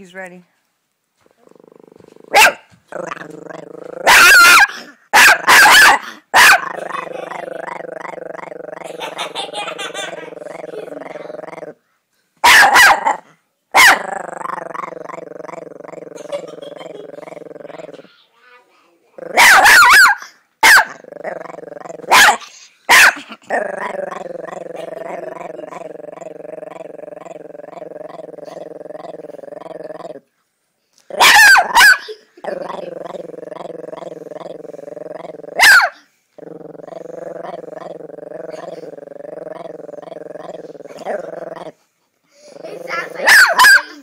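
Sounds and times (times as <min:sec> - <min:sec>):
dog growling: 0:01.2 - 0:05.0, 0:05.9 - 0:11.8, 0:12.9 - 0:18.1, 0:19.2 - 0:19.8, 0:20.8 - 0:22.5, 0:23.2 - 0:30.3, 0:31.1 - 0:41.8, 0:42.4 - 0:44.0
dog barking: 0:02.3 - 0:02.7, 0:04.0 - 0:06.8, 0:12.4 - 0:13.2, 0:13.8 - 0:14.0, 0:19.3 - 0:21.0, 0:22.1 - 0:23.3, 0:31.2 - 0:32.2, 0:35.6 - 0:36.0, 0:43.2 - 0:44.0.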